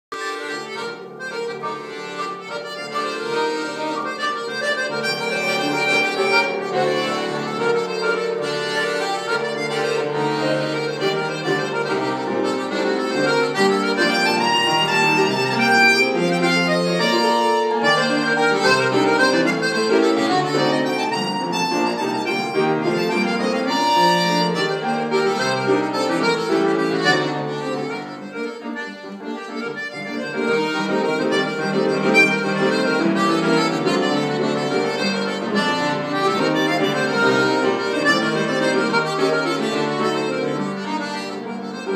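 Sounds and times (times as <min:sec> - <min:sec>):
accordion melody: 0:00.1 - 0:41.9.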